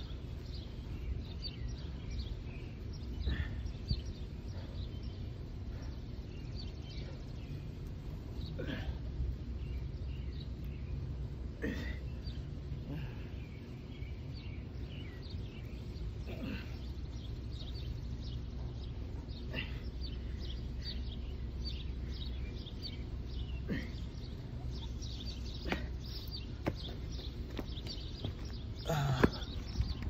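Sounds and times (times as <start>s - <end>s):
low outdoor rumble: 0.0s - 30.0s
small birds chirping: 0.0s - 30.0s.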